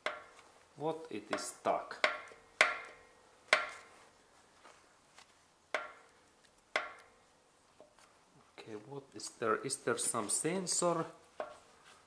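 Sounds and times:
metal-on-metal knocks with ringing: 1.4 - 3.8, 5.8 - 6.0, 6.8 - 7.1.

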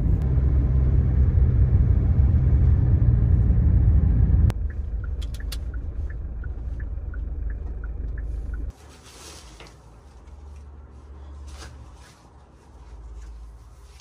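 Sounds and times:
engine hum: 0.0 - 8.9
car road and engine rumble: 0.0 - 14.0
light ticking: 4.5 - 8.7.

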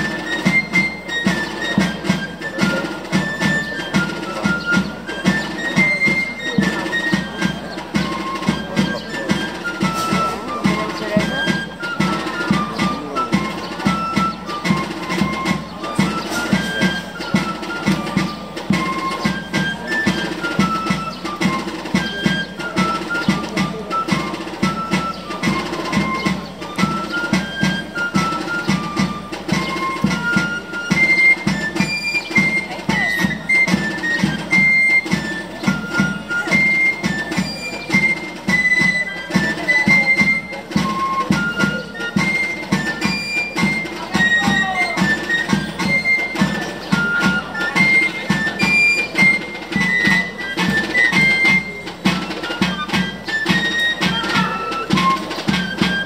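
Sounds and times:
steady drum beat: 12.6 - 19.5.

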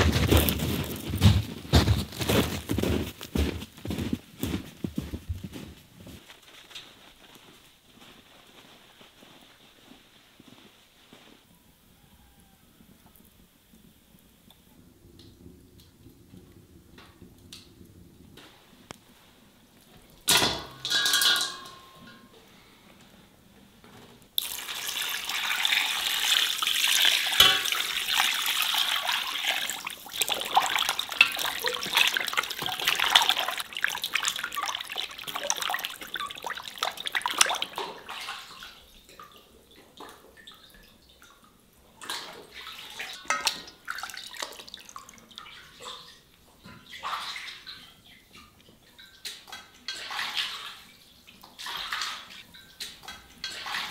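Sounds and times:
water sloshing in a basin: 24.4 - 53.9.

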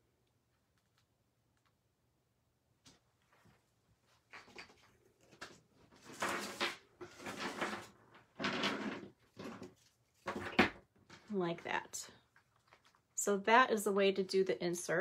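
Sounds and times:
craft supplies scraping and rustling: 4.4 - 11.3.

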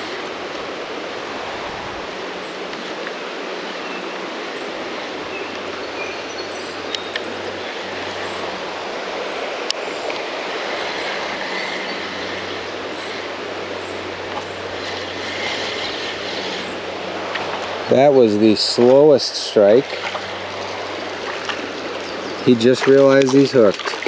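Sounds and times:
creek rushing: 0.0 - 24.0.

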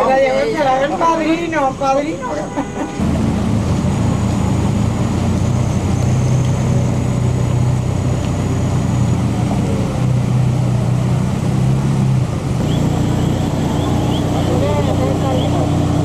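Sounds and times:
car engine idling: 0.2 - 16.0.

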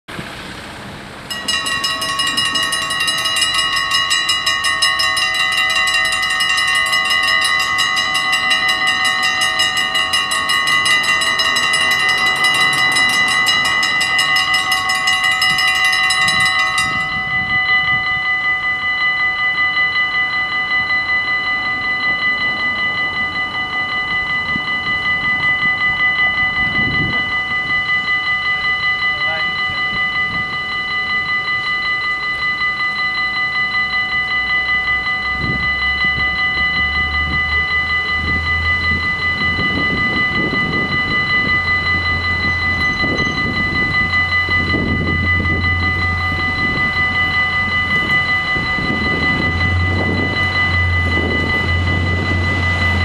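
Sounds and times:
level crossing bells ringing: 1.3 - 53.0.

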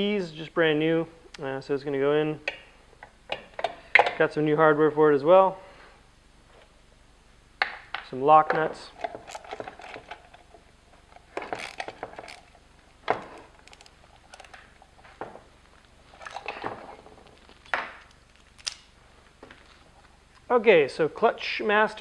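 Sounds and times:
metal parts clicking and knocking: 8.0 - 15.4, 16.0 - 18.9.

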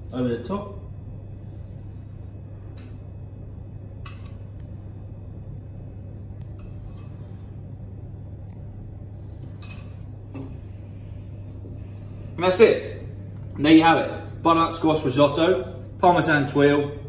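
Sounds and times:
steady low hum: 0.0 - 17.0
metal spoon clinking on ceramic bowl: 4.0 - 4.4, 9.6 - 10.5.

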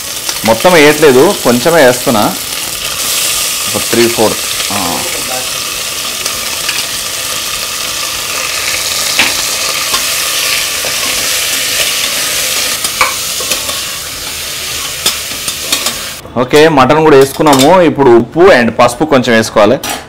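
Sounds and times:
meat sizzling in hot oil: 0.0 - 16.2.

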